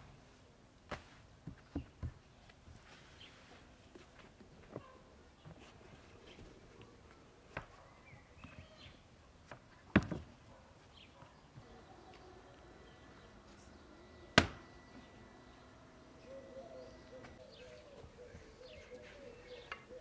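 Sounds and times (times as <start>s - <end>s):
faint bird chirps: 11.0s - 20.0s.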